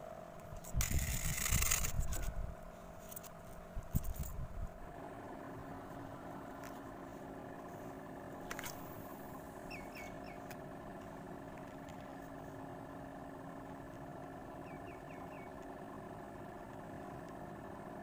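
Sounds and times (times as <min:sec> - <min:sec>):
low engine hum: 0:00.0 - 0:18.0
fishing reel clicks and knocks: 0:00.6 - 0:02.3.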